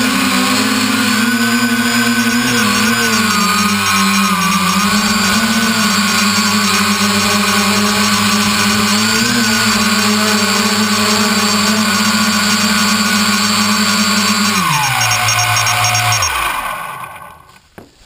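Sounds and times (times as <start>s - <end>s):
drone motors buzzing whine: 0.0s - 17.6s.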